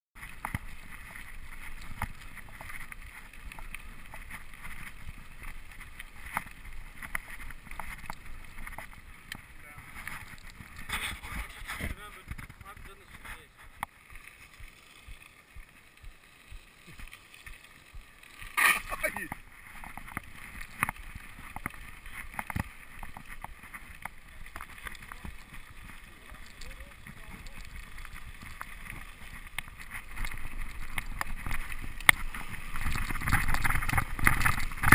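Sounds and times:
bike rattling: 0:00.2 - 0:34.9
bike tyres rumbling on gravel: 0:00.2 - 0:34.9.

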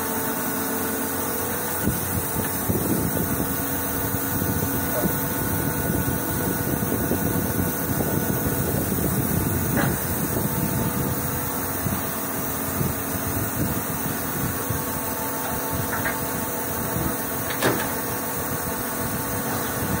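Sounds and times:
milling machine running: 0:00.0 - 0:20.0.

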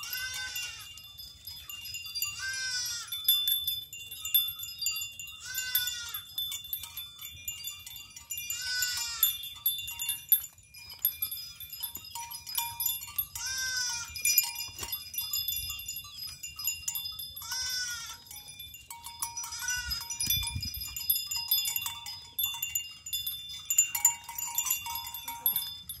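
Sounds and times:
goats bleating: 0:00.0 - 0:00.9, 0:02.3 - 0:03.2, 0:05.4 - 0:06.3, 0:08.5 - 0:09.4, 0:13.4 - 0:14.3, 0:17.4 - 0:18.4.

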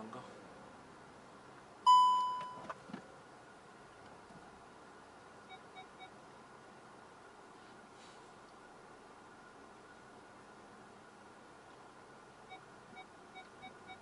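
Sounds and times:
electronic chime tone: 0:01.9 - 0:02.6
faint quick beeps: 0:01.9 - 0:02.7.

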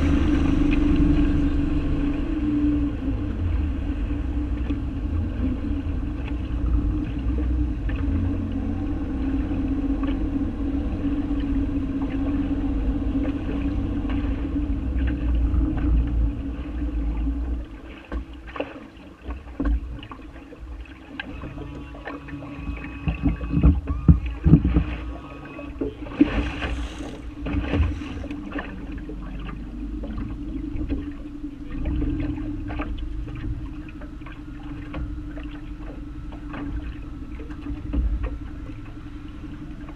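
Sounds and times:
steady low rumble: 0:00.0 - 0:39.9
water slapping against boat hull: 0:00.0 - 0:39.9
knocks against the hull: 0:18.1 - 0:20.1, 0:22.7 - 0:25.2, 0:25.8 - 0:28.7.

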